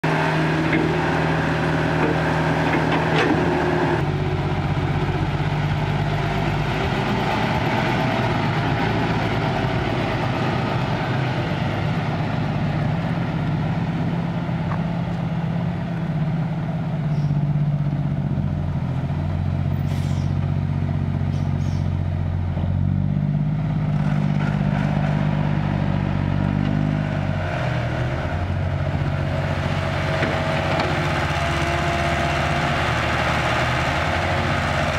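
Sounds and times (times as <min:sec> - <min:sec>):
dump truck diesel engine: 0:00.0 - 0:34.9
excavator diesel engine: 0:00.0 - 0:34.9.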